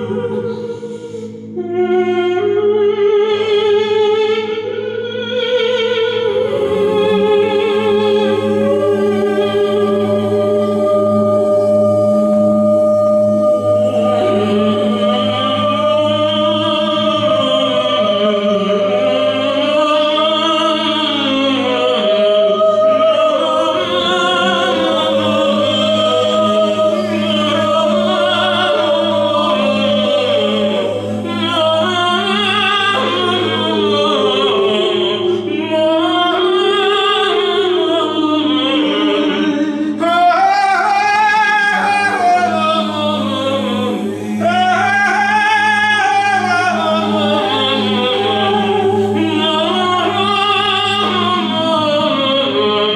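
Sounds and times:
steady low drone: 0.0 - 52.9
wordless singing voices: 0.0 - 52.9.

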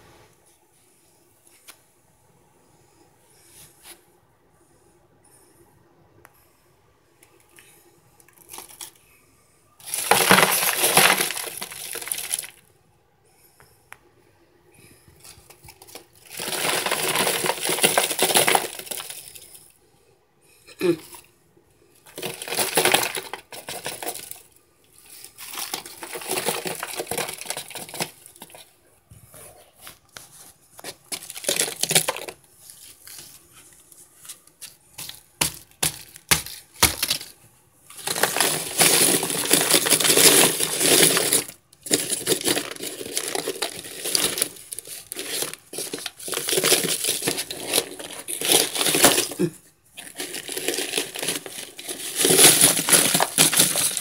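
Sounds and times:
dry crunching and crackling: 8.3 - 9.0, 9.8 - 12.6, 15.2 - 19.6, 22.0 - 28.7, 30.8 - 54.0.

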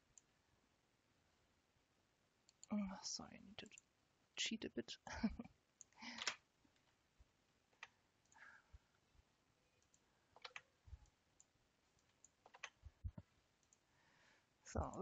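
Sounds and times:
computer mouse clicks: 5.8 - 6.9, 9.8 - 10.7, 11.4 - 13.8.

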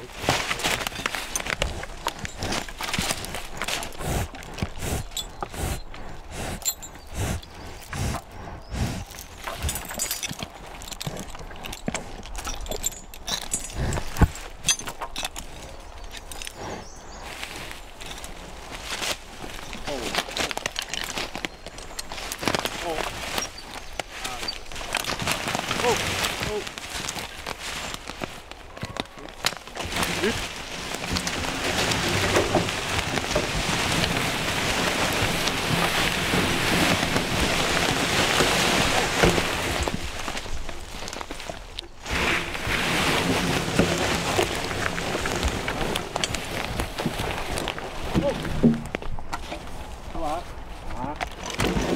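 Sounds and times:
log scraping over forest floor: 0.0 - 6.5, 13.7 - 51.9
chains and harness clinking: 0.4 - 8.0, 9.0 - 17.0, 17.6 - 27.5.

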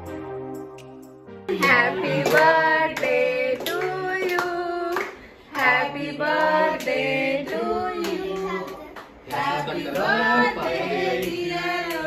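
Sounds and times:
hands clapping in time: 1.6 - 5.7.

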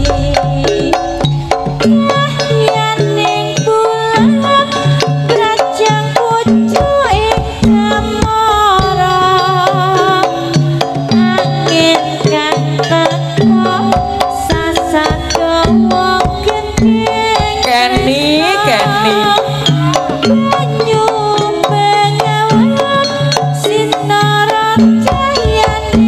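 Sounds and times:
hand drum strokes: 0.0 - 26.0
interlocking tuned percussion: 0.0 - 26.0
wavering melody line: 13.5 - 23.3.

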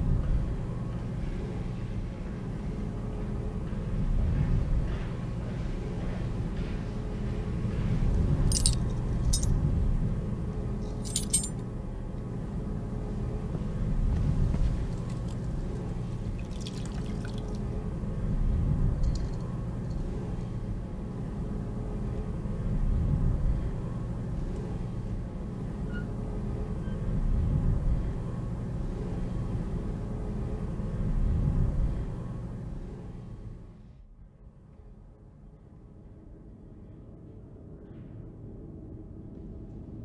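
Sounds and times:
sharp metallic clinks: 8.5 - 9.5, 11.0 - 11.6
faint trickle of water: 16.1 - 17.8.

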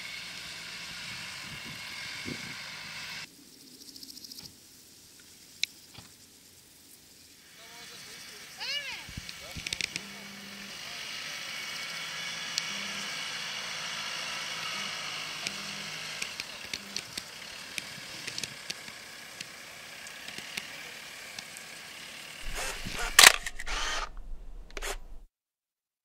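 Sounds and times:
grass hissing: 0.0 - 25.3
faint engine hum: 7.4 - 25.3.

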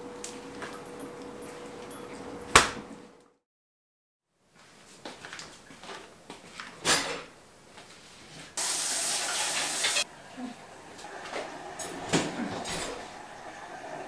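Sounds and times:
dishes clinking: 6.8 - 7.3
tap water running: 8.6 - 14.0.

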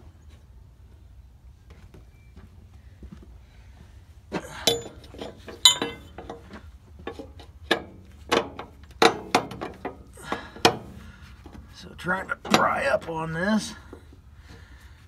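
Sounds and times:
metallic clinks and knocks: 4.5 - 10.0.

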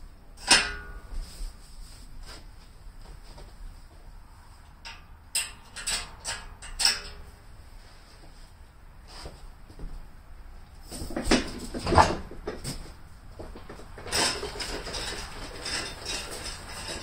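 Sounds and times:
metal clanks and knocks: 0.4 - 1.3, 4.6 - 7.3, 11.1 - 17.0.

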